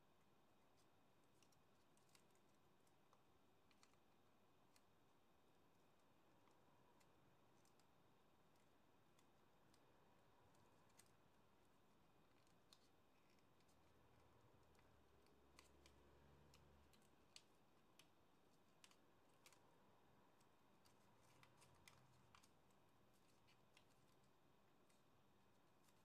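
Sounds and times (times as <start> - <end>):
paper being folded and creased: 12.2 - 26.0.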